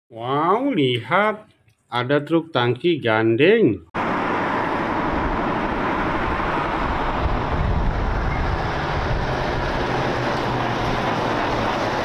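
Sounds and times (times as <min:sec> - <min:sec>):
truck driving by: 0:04.0 - 0:12.0.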